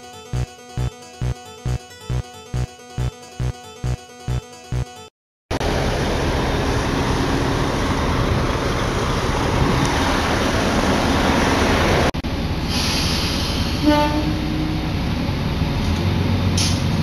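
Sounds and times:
diesel railcar engine rumble: 0:05.5 - 0:17.0.

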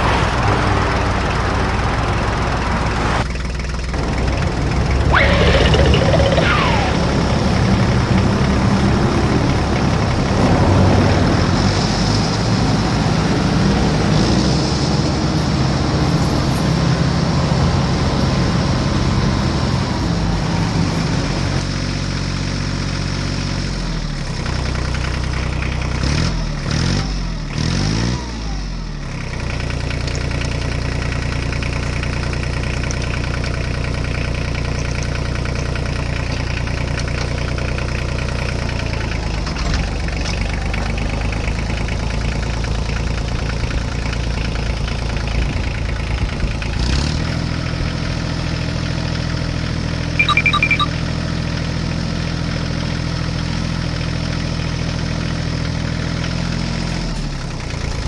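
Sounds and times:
tractor engine idling and revving: 0:00.0 - 0:58.0
high beeps: 0:05.1 - 0:07.2, 0:50.2 - 0:51.0.

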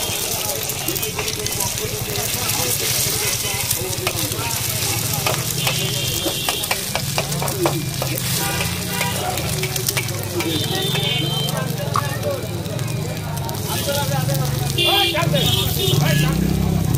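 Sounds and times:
eggs sizzling in hot oil: 0:00.0 - 0:16.9
metal spatula scraping a pan: 0:00.9 - 0:11.0.

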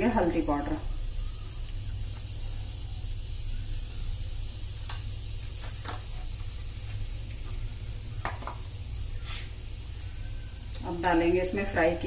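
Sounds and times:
hot oil sizzling with pops: 0:00.0 - 0:12.0.

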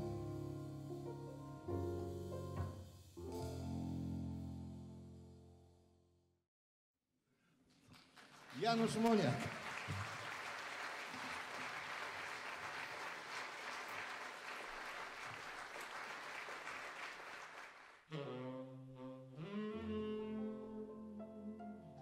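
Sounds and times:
tenor saxophone melody: 0:00.0 - 0:05.0, 0:18.1 - 0:21.8
double bass: 0:00.0 - 0:05.2
audience applauding: 0:07.7 - 0:18.0.

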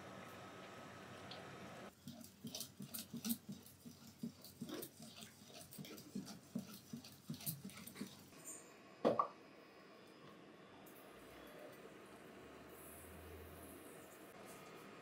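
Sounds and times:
whisk beating batter in bowl: 0:01.9 - 0:08.4.

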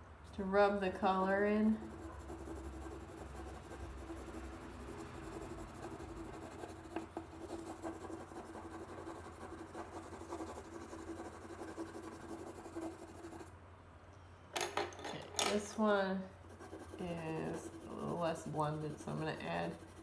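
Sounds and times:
pencil scratching on paper: 0:01.7 - 0:13.5, 0:16.5 - 0:20.0.

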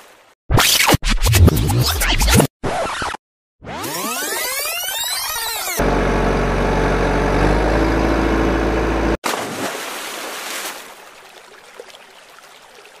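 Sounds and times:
truck engine rumbling: 0:05.8 - 0:09.2
muddy water splash: 0:09.2 - 0:13.0.

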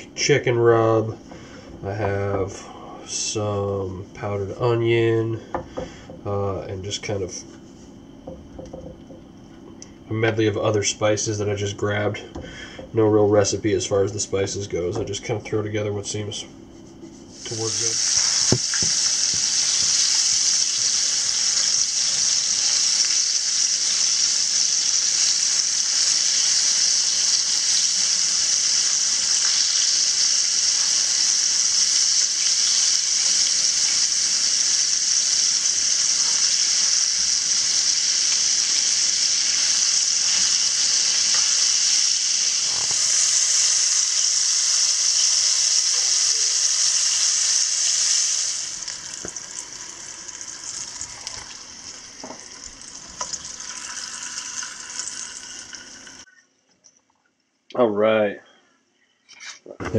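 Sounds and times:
food frying in hot oil: 0:17.4 - 0:56.3.

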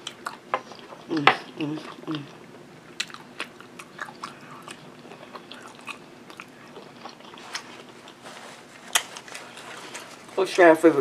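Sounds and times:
person chewing meat: 0:00.0 - 0:10.3.

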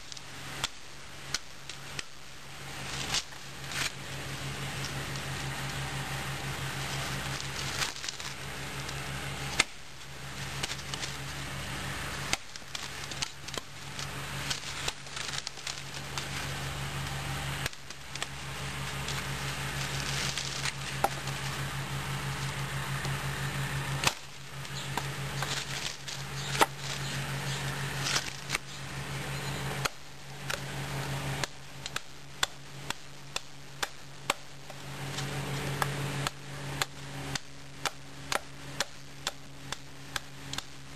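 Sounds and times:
steady low hum: 0:00.0 - 0:40.9
knife chopping into wood: 0:26.5 - 0:26.8, 0:35.8 - 0:40.7.

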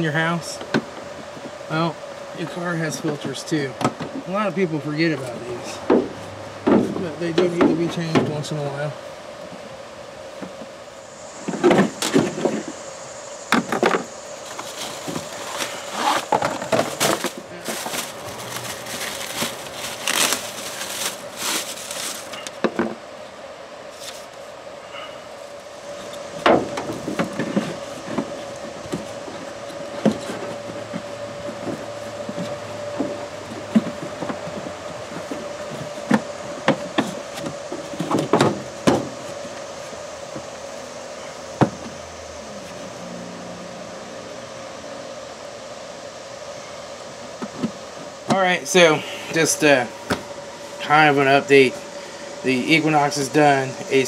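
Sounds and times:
plastic wrapping crinkling: 0:14.4 - 0:22.6
faint steady tone: 0:21.0 - 0:54.0.

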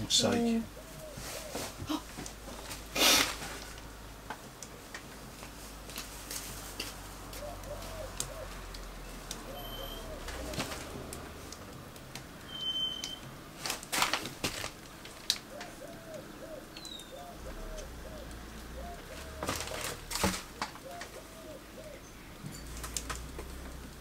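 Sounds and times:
pigeon cooing: 0:00.7 - 0:02.1, 0:07.3 - 0:11.5, 0:15.4 - 0:22.4.

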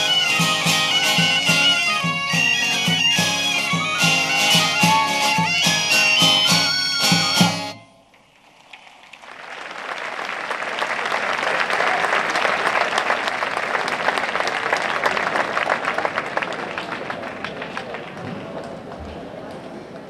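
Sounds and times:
live folk music: 0:00.0 - 0:08.1
audience applause: 0:08.3 - 0:20.0.

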